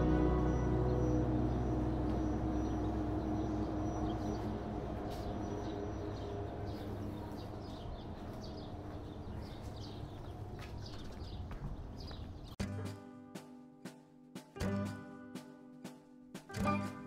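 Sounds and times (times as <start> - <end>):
low steady drone: 0.0 - 9.3
small birds chirping: 0.0 - 12.6.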